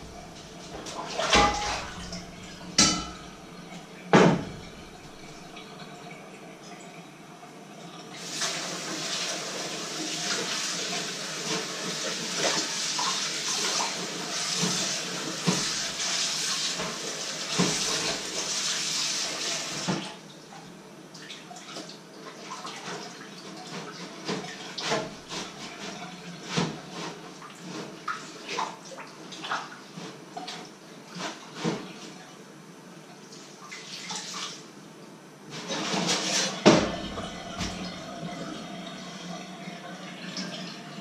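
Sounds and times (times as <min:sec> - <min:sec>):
dishes clinking and splashing: 0:00.0 - 0:06.1, 0:35.6 - 0:41.0
tap water running into sink: 0:00.0 - 0:06.1, 0:08.2 - 0:20.1, 0:36.0 - 0:41.0.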